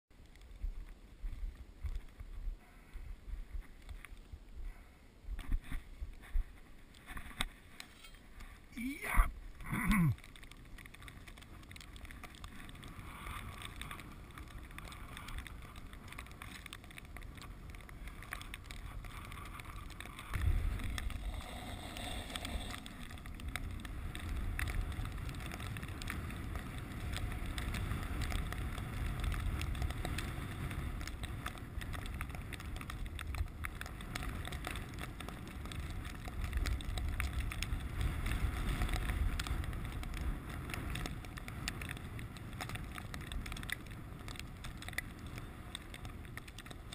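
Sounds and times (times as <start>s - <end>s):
small clicks and knocks: 9.6s - 46.9s
sled runners scraping snow: 11.1s - 46.9s.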